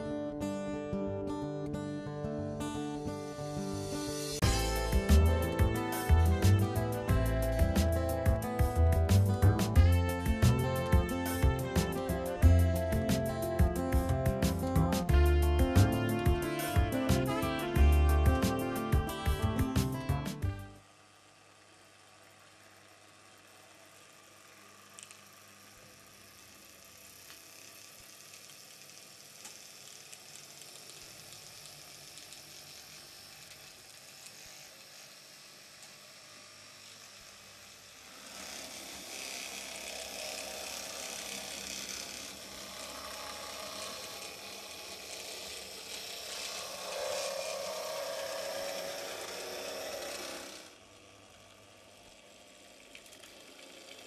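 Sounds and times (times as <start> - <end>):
model tram motor whirring: 2.7 - 54.0
gears and wheels clicking and rattling: 23.8 - 54.0.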